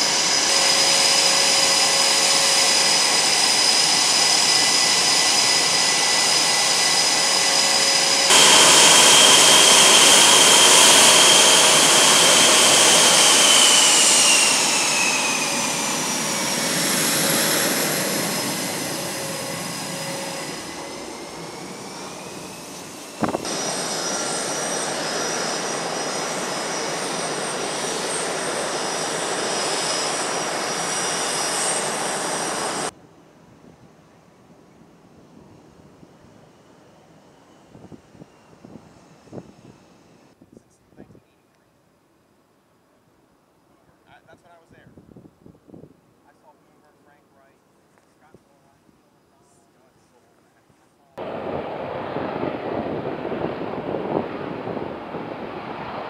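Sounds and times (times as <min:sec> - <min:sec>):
jet engines whining: 0:00.0 - 0:32.9, 0:51.2 - 0:56.0
taxiing jet passing by: 0:00.0 - 0:32.9, 0:51.2 - 0:56.0.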